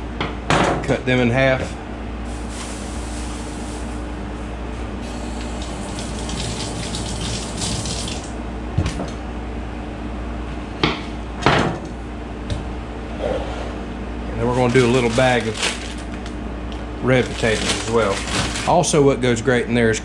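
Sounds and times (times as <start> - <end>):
faucet running into metal sink: 5.4 - 8.3
hands rinsing under water: 5.6 - 8.3.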